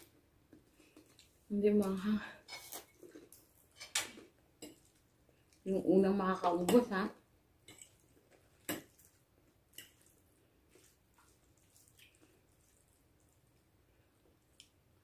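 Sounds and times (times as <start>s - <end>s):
wet mouth sounds eating: 9.8s - 13.4s.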